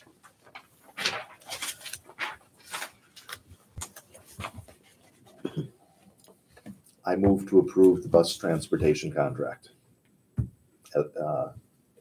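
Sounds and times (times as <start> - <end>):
paper rustling: 0.0 - 5.4.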